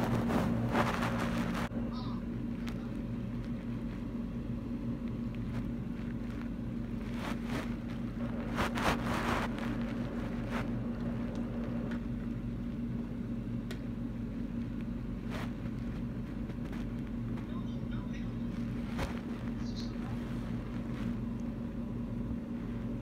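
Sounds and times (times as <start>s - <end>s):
bursts of rustling noise: 0.0s - 1.7s, 5.1s - 11.9s, 14.6s - 17.5s, 18.4s - 21.4s
low hum on call line: 0.0s - 23.0s.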